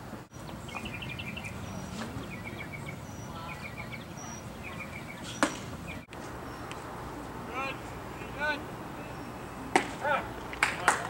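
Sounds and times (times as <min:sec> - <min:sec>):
outdoor background noise: 0:00.0 - 0:11.0
small bird chirping: 0:00.3 - 0:06.8.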